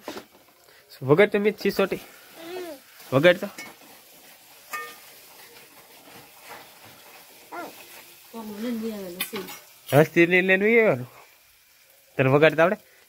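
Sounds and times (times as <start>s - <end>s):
faint room hiss: 0.0s - 13.0s
person vocalizing: 2.4s - 2.8s.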